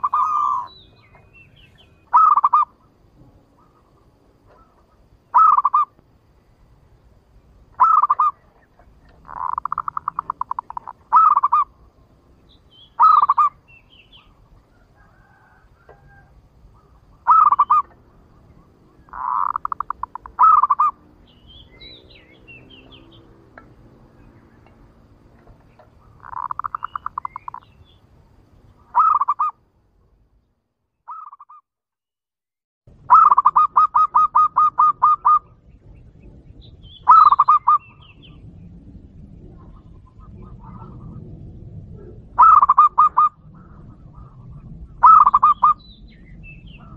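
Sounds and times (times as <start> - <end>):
dove cooing: 0.0 - 0.8, 2.0 - 2.9, 3.6 - 5.9, 7.8 - 11.9, 13.0 - 21.2, 25.4 - 27.6, 28.8 - 29.6, 33.1 - 35.6, 37.0 - 38.0, 39.5 - 41.3, 41.9 - 45.8.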